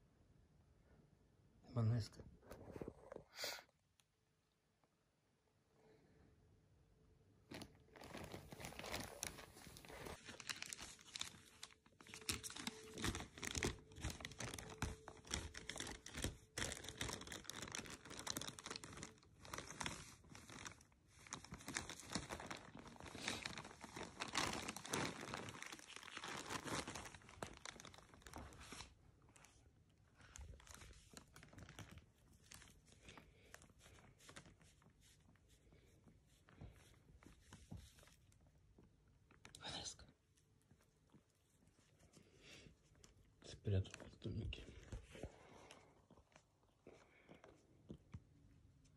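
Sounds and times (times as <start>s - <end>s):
plastic bag crinkling: 7.5s - 35.4s.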